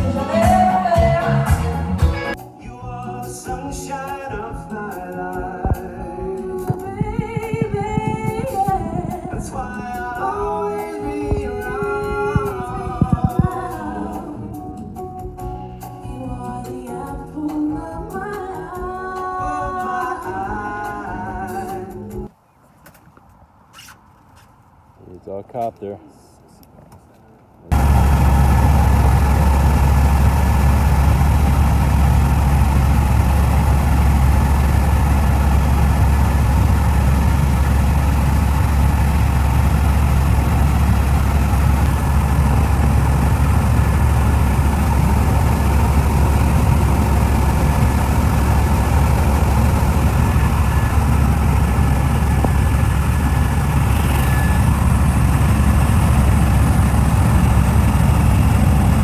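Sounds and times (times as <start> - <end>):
helicopter engine and rotor droning: 27.7 - 59.0.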